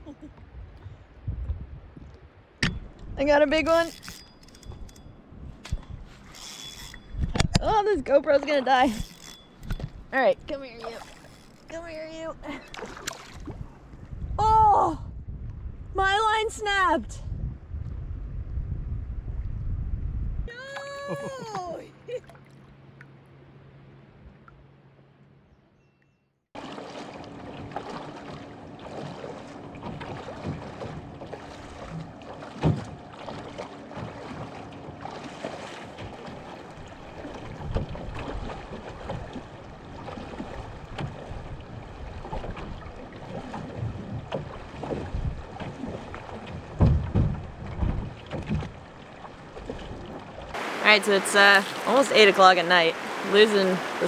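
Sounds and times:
water rushing around canoe hull: 2.8s - 14.6s, 26.6s - 54.0s
knocks against canoe hull: 32.6s - 33.0s, 40.9s - 41.3s, 43.5s - 48.8s.

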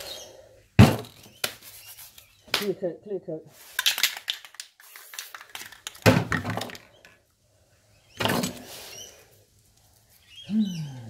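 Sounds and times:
spray cans knocking and rattling: 3.7s - 7.2s.

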